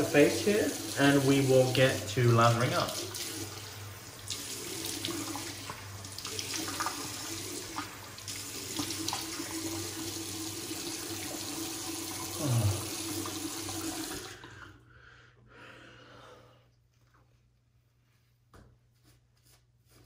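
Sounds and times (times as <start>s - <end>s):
sink faucet running: 0.0s - 14.7s.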